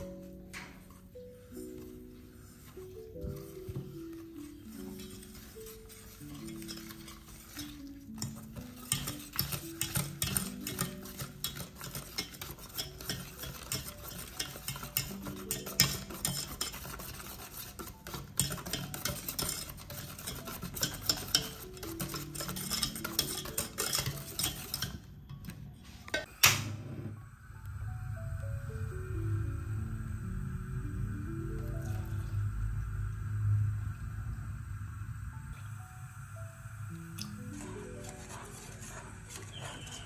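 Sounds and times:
whisk clicking and scraping in pot: 0.0 - 26.3, 37.2 - 40.0.

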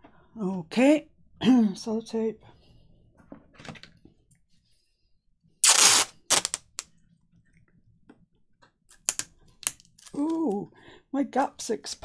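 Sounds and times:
tape ripping off roll: 5.6 - 6.8
tape crackling: 5.6 - 6.9.

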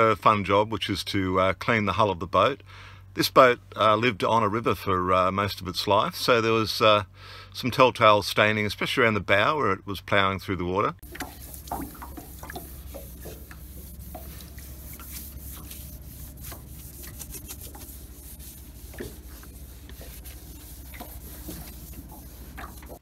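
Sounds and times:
sponge scrubbing fibreglass hull: 11.0 - 23.0
steady low hum: 11.0 - 23.0.

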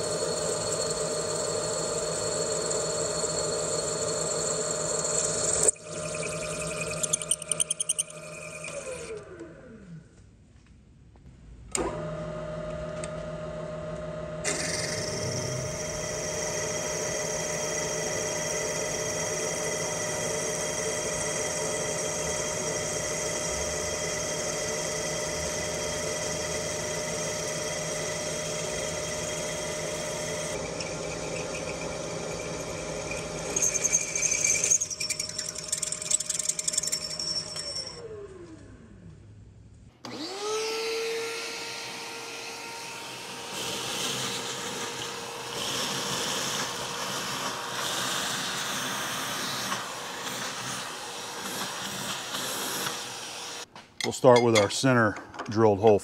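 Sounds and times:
milling machine drilling metal: 0.0 - 9.3, 14.4 - 38.0, 43.0 - 54.8
shop vacuum running: 0.0 - 10.2, 11.7 - 54.7.

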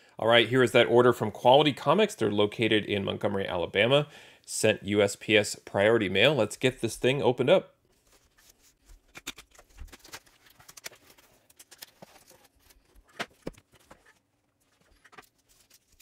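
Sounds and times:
cardboard rustling and scraping: 7.9 - 16.0.

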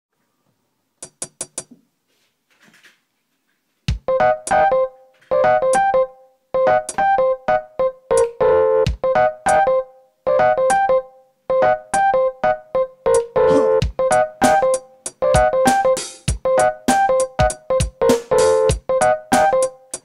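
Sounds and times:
sampler drum hits: 3.9 - 4.2, 13.5 - 19.6
pitched sample stabs: 11.6 - 20.0
deep kick drum hits: 13.8 - 14.0.

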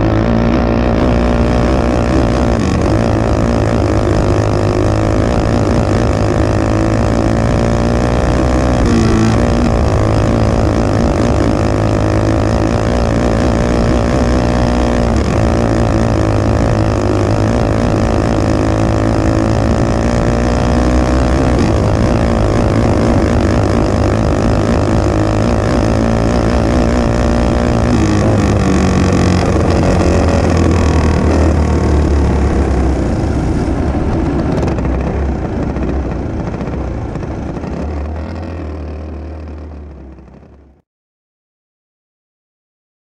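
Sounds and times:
wind noise: 0.0 - 38.8
racing kart engine: 0.0 - 40.8
track noise: 0.0 - 40.8.

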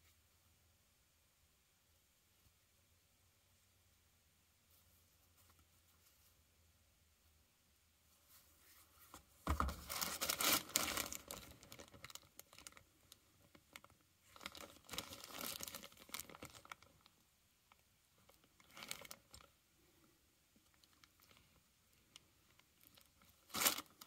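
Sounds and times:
cardboard and plastic packaging crinkling: 9.5 - 17.1, 18.3 - 19.5, 22.1 - 24.0.

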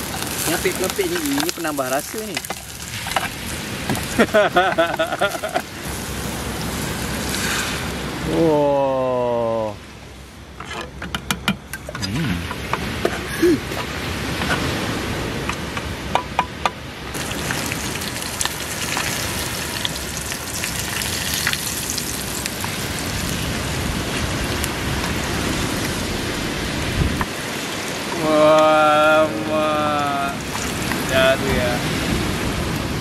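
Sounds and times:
fish sizzling in hot oil: 0.0 - 8.0, 17.2 - 23.8, 30.3 - 31.7.

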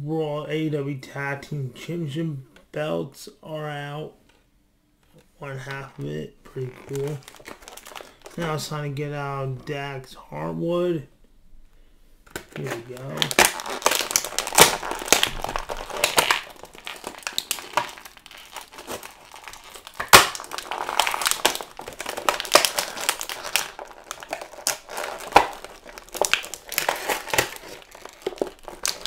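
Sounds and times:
plastic packaging crinkling: 5.6 - 8.7, 12.3 - 29.0
plastic snapping: 12.3 - 29.0.

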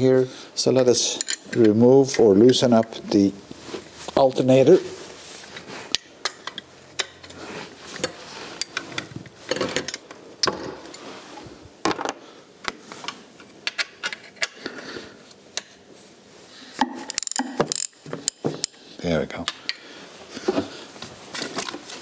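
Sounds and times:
spanners clinking on bolts: 17.1 - 18.8.

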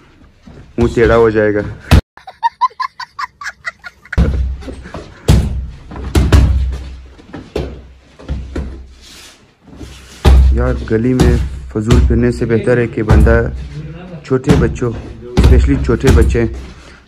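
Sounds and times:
punches and kicks thudding: 4.1 - 8.8, 10.2 - 12.4, 14.5 - 16.5.

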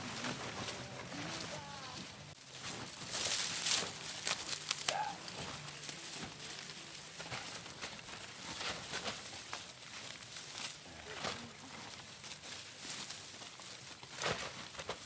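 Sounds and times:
dry corn stalks rustling: 0.0 - 15.0.

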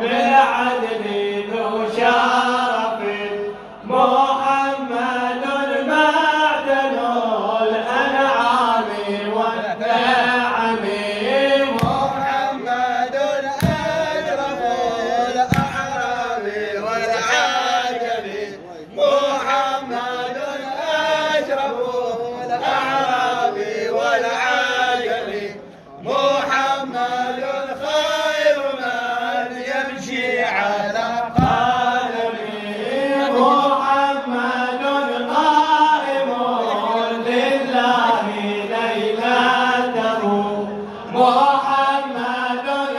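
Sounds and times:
men chanting a praise song: 0.0 - 42.9
dull thump: 11.8 - 12.3, 13.6 - 14.3, 15.5 - 16.1, 31.4 - 31.9
sharp beats: 11.8 - 12.4, 13.6 - 14.4, 15.4 - 16.2.

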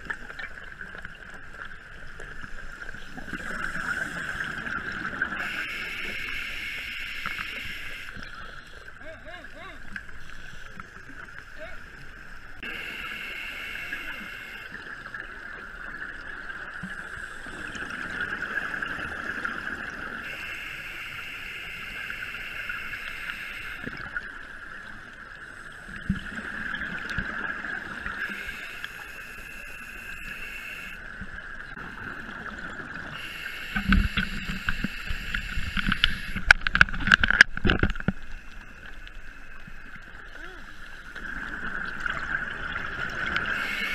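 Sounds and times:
regulator inhale hiss: 12.6 - 14.7, 33.2 - 36.4, 43.6 - 43.9.

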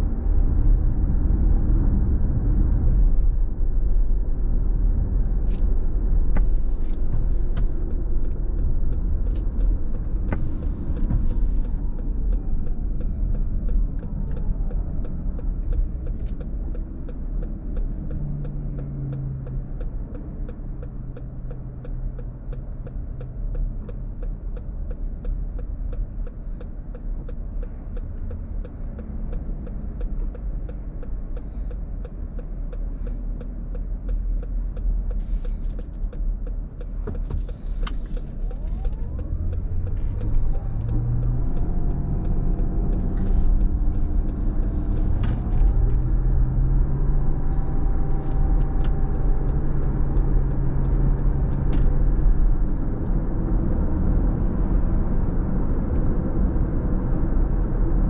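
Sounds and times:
road rumble in car cabin: 0.0 - 58.0
light even ticking: 6.0 - 53.6
car engine idling: 33.0 - 46.2.

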